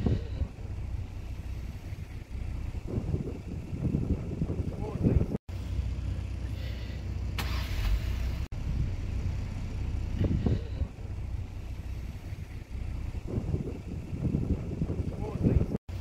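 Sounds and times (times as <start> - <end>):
low outdoor rumble: 0.0 - 16.0
short hiss: 6.6 - 8.5.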